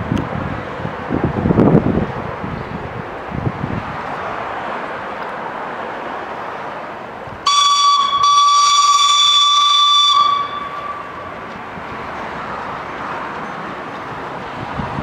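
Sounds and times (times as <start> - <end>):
steam whistle blast: 7.4 - 11.4.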